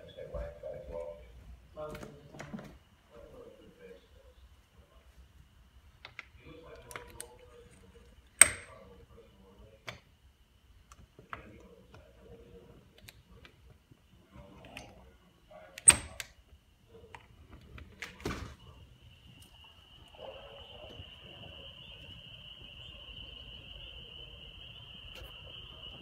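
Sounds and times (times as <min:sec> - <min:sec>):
high-pitched animal chorus: 0:18.7 - 0:26.0.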